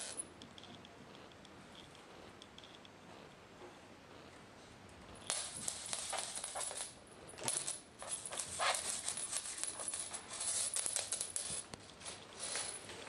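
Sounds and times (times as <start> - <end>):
small bell jingling and rattling: 0.0 - 0.8, 5.2 - 12.9.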